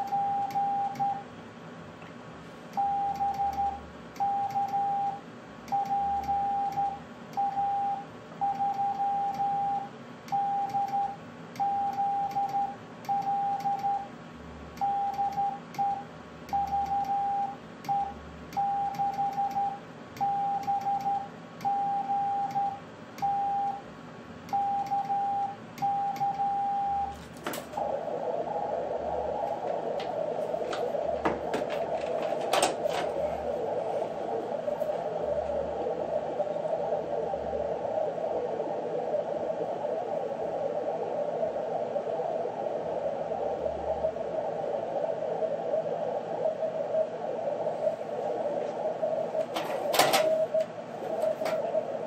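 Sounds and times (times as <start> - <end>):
morse code beeps: 0.0 - 1.2, 2.8 - 14.1, 14.8 - 23.8, 24.5 - 27.2
radio receiver hiss: 27.0 - 52.0.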